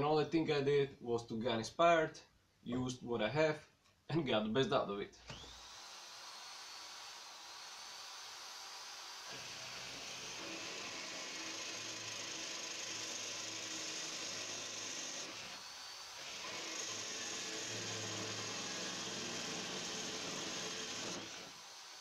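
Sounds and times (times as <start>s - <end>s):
electric drill boring through steel: 5.3s - 22.0s.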